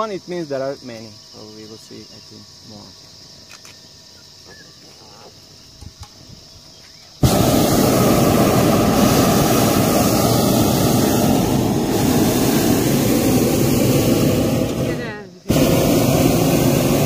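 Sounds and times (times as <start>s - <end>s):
faint insects chirring: 0.0s - 17.0s
propane burner blast: 7.2s - 17.0s.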